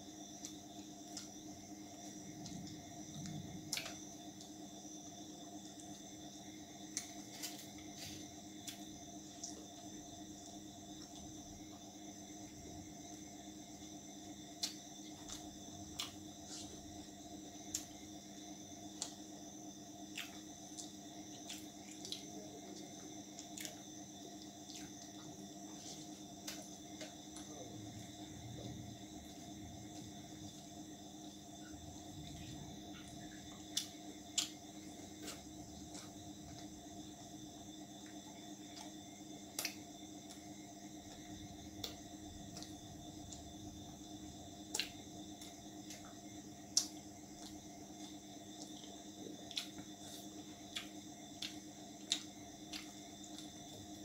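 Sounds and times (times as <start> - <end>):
steady background hum: 0.0 - 54.0
wet chewing clicks and smacks: 31.7 - 36.8, 38.0 - 54.0.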